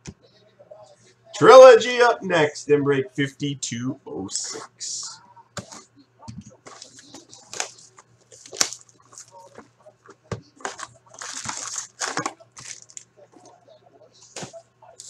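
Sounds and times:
plastic wrap ripping and crinkling: 6.7 - 9.6, 10.6 - 13.1.

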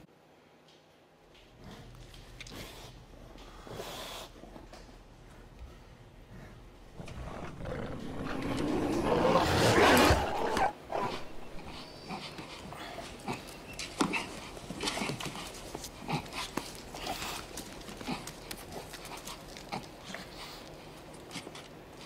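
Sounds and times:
dog growling: 6.9 - 22.0.

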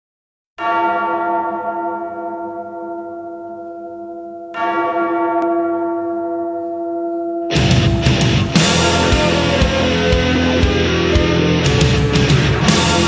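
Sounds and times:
church bell tolling: 0.6 - 13.0.

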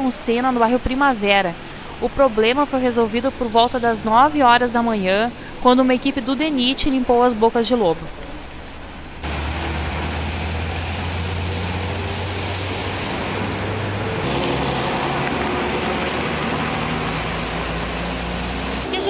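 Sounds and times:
water wash and tyre noise: 0.0 - 19.0
truck and car engines: 8.2 - 19.0.

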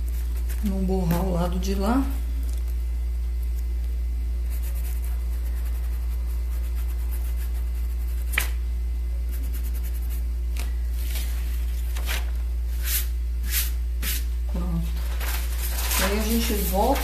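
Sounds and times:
low electrical hum: 0.0 - 17.0
paintbrush brushing strokes: 4.4 - 8.4, 9.2 - 10.3.

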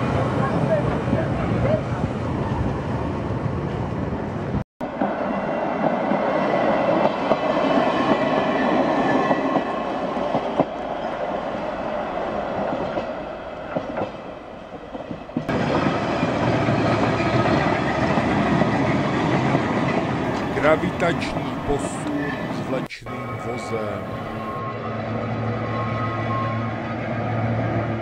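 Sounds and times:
tram wheels clattering on rails: 4.9 - 24.6.

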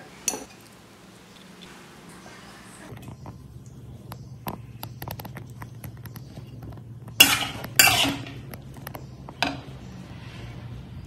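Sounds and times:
metal spoon scraping metal pan: 7.2 - 8.5.

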